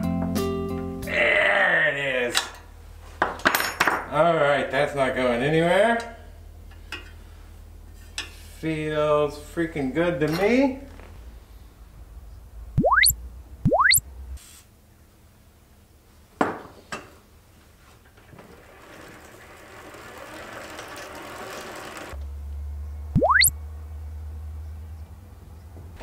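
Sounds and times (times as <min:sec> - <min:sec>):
marker squeaking on whiteboard: 0:12.8 - 0:13.1, 0:13.7 - 0:14.0, 0:23.2 - 0:23.5.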